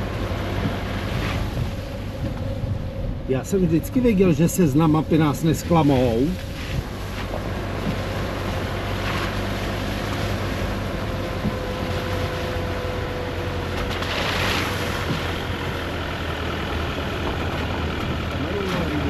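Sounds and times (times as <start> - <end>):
car engine hum: 0.0 - 19.0
tyre and road noise: 0.0 - 19.0.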